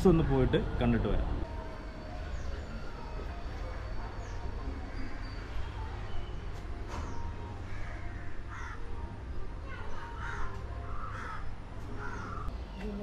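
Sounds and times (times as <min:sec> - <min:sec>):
crows cawing: 0:07.6 - 0:09.0, 0:09.7 - 0:12.5.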